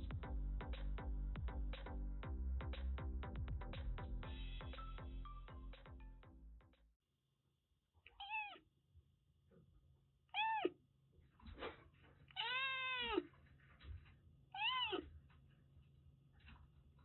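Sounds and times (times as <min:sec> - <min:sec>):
kitten meowing: 0:08.1 - 0:08.6, 0:10.4 - 0:10.7, 0:12.3 - 0:13.2, 0:14.6 - 0:15.0.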